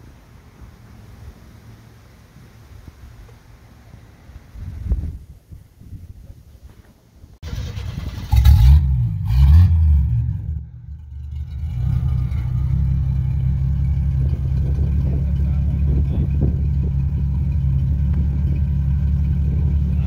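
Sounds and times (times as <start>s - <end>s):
car engine idling: 7.4s - 20.0s
car engine starting and revving: 7.4s - 20.0s.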